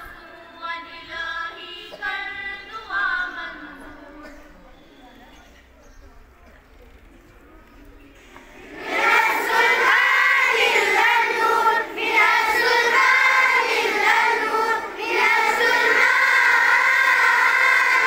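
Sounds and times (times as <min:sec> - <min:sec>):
children singing in unison: 0:08.5 - 0:18.0.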